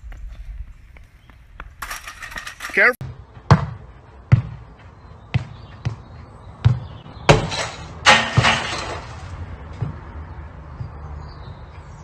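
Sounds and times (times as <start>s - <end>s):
ball crashing against house: 6.7s - 10.0s.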